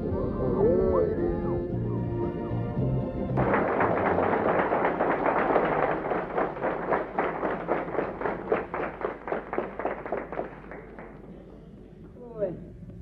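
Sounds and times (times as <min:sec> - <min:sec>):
people applauding: 0:03.4 - 0:11.6.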